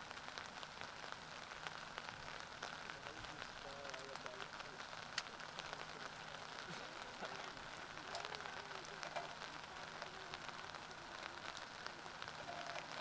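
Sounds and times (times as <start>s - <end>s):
light rain pattering: 0.0s - 13.0s
faint distant voices calling: 2.6s - 13.0s.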